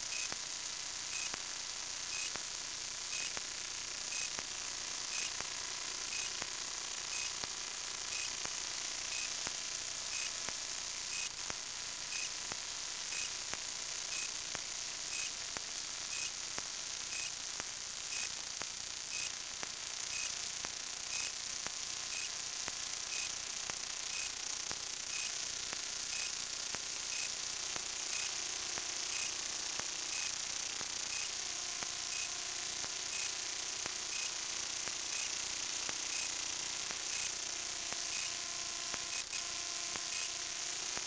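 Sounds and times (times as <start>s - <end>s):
microphone hiss: 0.0s - 41.0s
faint high ticks: 0.1s - 0.4s, 1.1s - 1.4s, 2.1s - 2.4s, 3.1s - 3.4s, 4.1s - 4.5s, 6.1s - 6.4s, 9.1s - 9.4s, 13.1s - 14.3s, 17.1s - 17.3s, 18.1s - 18.3s, 24.1s - 24.4s, 33.1s - 33.3s.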